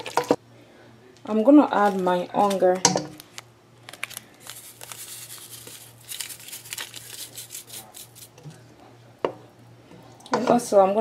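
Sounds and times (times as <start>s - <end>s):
plastic packet crinkling: 1.7s - 8.4s.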